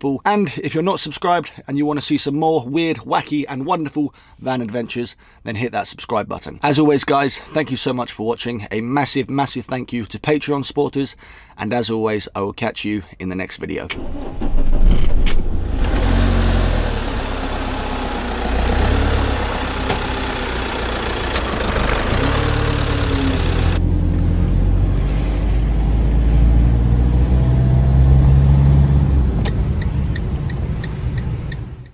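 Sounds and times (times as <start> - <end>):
van engine driving: 14.0 - 31.9.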